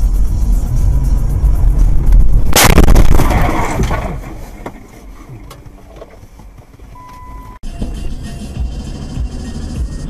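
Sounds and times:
engine and road rumble: 0:00.0 - 0:10.0
car collision: 0:02.4 - 0:06.3
short high beep: 0:07.0 - 0:07.7.

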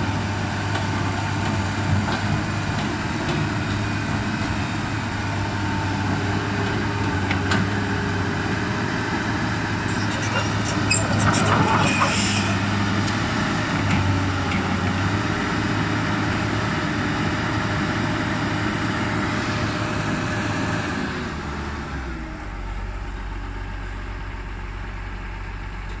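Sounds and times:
excavator diesel engine running: 0:00.0 - 0:26.0.

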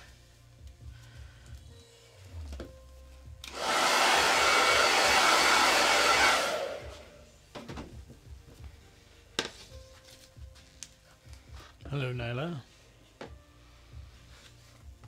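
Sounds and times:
hair dryer blowing: 0:03.4 - 0:07.2.

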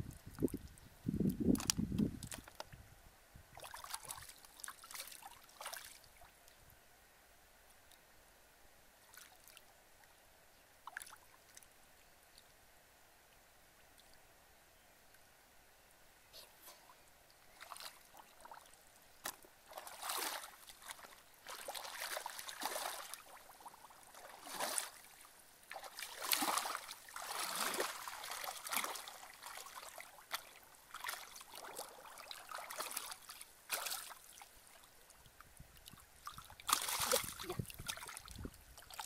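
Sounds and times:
muddy water sloshing and splashing: 0:03.5 - 0:06.2, 0:17.5 - 0:34.9, 0:35.8 - 0:39.0.

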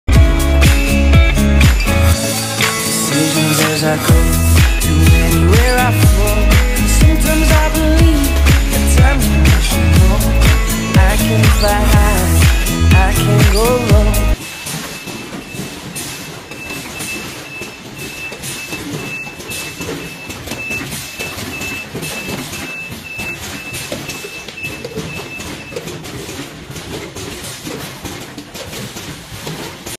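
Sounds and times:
conveyor and bottles rattling: 0:00.1 - 0:29.9
sharp machine clicks: 0:01.6 - 0:28.0
short beeps: 0:14.8 - 0:25.8.

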